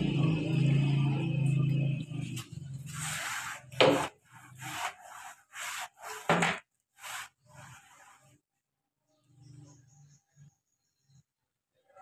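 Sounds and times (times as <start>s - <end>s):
floor cloth scraping concrete: 2.2s - 8.5s.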